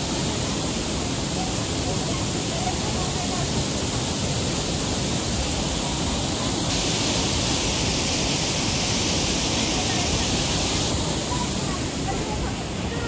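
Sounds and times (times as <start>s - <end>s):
mountain stream and waterfall rushing: 0.0s - 13.0s.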